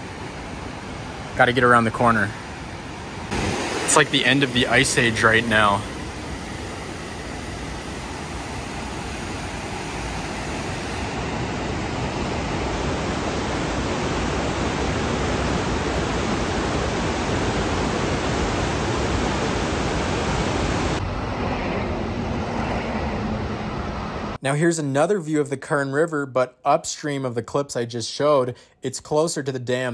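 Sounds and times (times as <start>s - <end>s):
whitewater rapids roaring: 0.0s - 21.0s.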